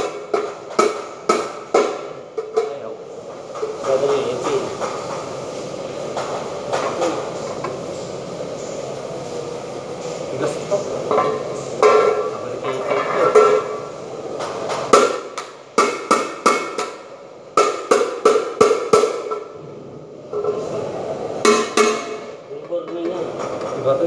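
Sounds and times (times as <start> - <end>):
hand tool striking metal: 11.1 - 13.8, 17.6 - 19.5, 21.4 - 23.2.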